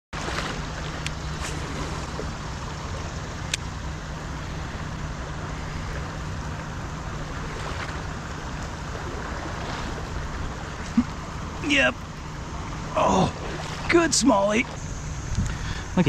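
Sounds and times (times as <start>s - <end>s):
river water flowing: 0.1s - 16.0s
wind on microphone: 14.8s - 16.0s.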